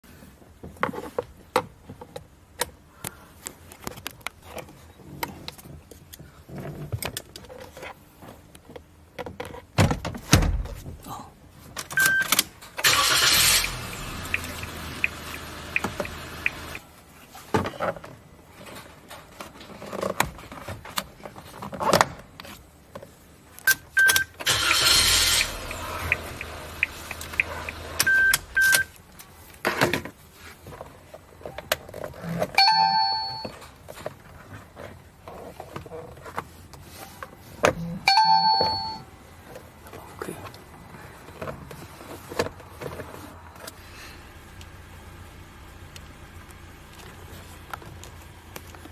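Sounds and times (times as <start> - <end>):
dense rustling noise: 28.9 - 32.2.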